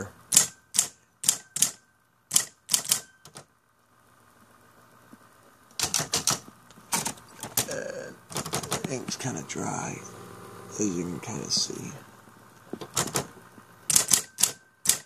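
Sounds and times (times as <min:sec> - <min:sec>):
electric typewriter key clacks: 0:00.3 - 0:03.5, 0:05.7 - 0:09.2, 0:12.8 - 0:13.3, 0:13.9 - 0:15.0.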